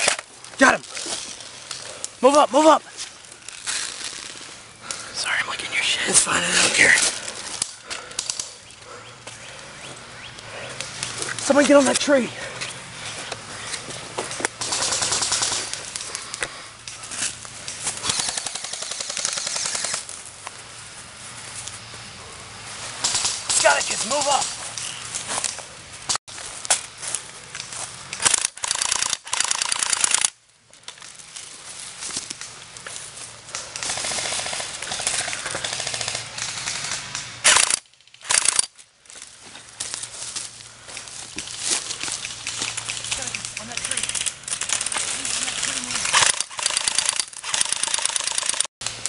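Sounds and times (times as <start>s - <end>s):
airsoft rifles firing: 14.6s - 15.9s, 18.0s - 20.1s, 33.8s - 38.7s.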